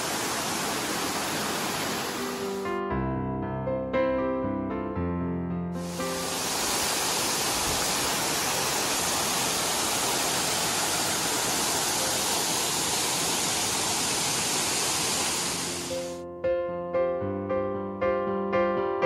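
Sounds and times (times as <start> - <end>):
waterfall rushing over rocks: 0.0 - 2.6, 5.8 - 16.2.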